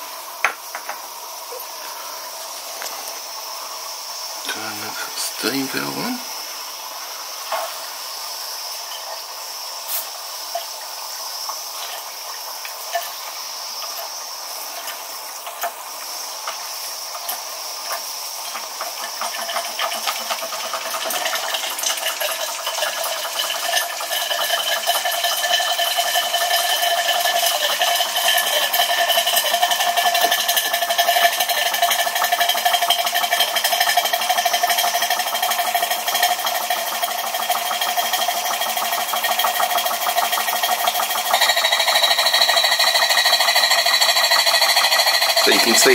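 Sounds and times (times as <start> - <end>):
steam hissing: 0.0 - 45.9
toy steam engine running: 1.5 - 45.9.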